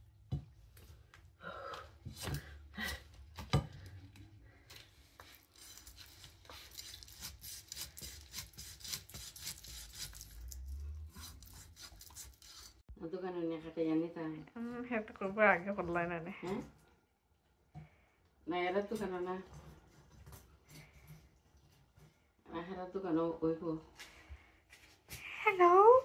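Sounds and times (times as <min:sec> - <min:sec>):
knife rasping through fish: 0:05.2 - 0:12.8.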